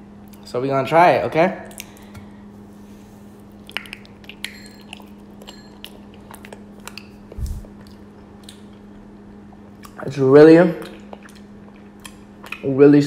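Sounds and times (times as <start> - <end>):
faint steady hum: 0.0 - 13.0
chewing honeycomb mouth clicks: 1.6 - 2.2, 3.5 - 12.7.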